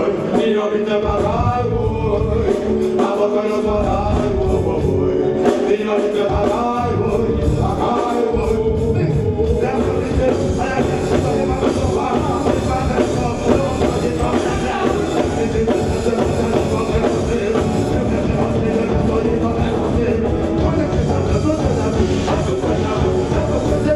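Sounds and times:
drum kit: 0:00.0 - 0:23.9
electric guitar: 0:00.0 - 0:23.9
keyboard: 0:00.0 - 0:23.9
man singing: 0:00.0 - 0:23.9.

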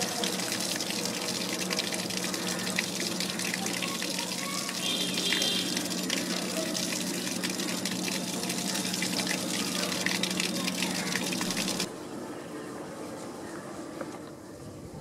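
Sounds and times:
rushing noise like running water: 0:00.0 - 0:11.9.

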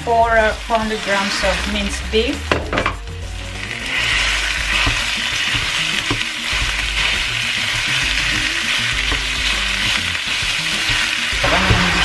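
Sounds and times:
meat and onions sizzling in pan: 0:00.0 - 0:12.0
spatula knocking on pan: 0:02.4 - 0:03.1, 0:04.6 - 0:10.1
wooden spatula stirring meat: 0:03.6 - 0:12.0.

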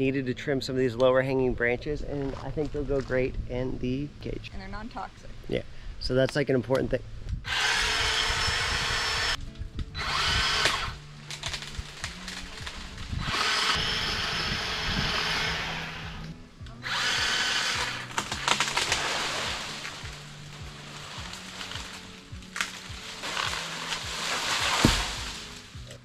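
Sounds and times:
power saw cutting branches: 0:07.5 - 0:09.4, 0:10.0 - 0:26.0.

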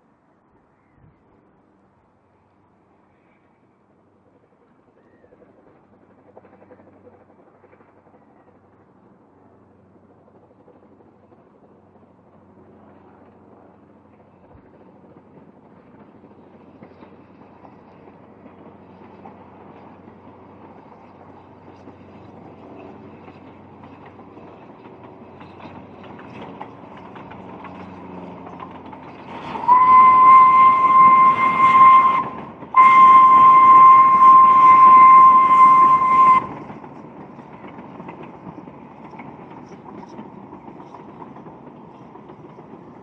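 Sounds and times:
steam locomotive running: 0:03.0 - 0:43.0
steam whistle blasts: 0:29.6 - 0:36.6.

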